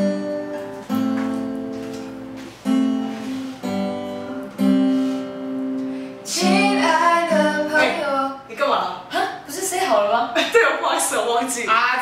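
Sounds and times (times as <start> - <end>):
acoustic guitar strumming chords: 0.0 - 8.4.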